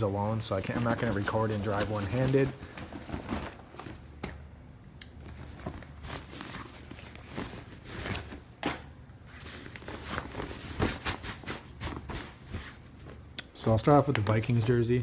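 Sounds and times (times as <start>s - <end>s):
fabric bag rustling: 0.6s - 4.1s, 5.2s - 8.5s, 9.3s - 13.2s.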